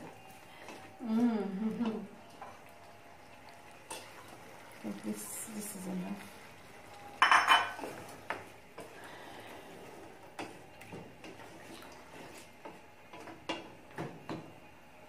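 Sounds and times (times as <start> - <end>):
kitchenware clattering: 7.2 - 8.4.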